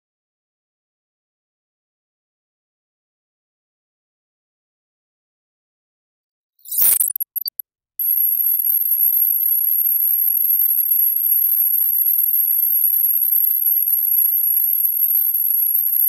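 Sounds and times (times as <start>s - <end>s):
high-pitched electronic tone: 6.7s - 16.0s.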